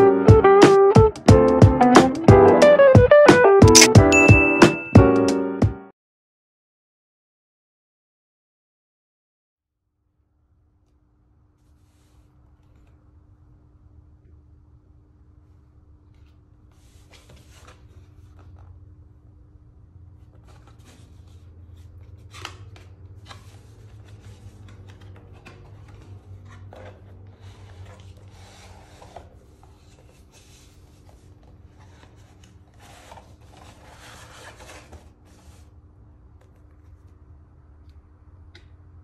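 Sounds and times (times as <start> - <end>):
paper and card rustling: 11.6 - 13.0, 16.1 - 18.8, 20.2 - 35.7
cardboard sleeve sliding and scraping: 16.7 - 18.6, 23.2 - 35.7.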